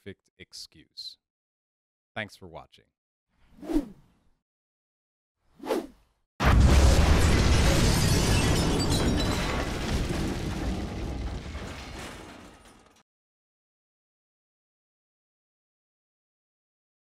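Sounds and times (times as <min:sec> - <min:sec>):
explosion deep boom: 0:06.4 - 0:11.8.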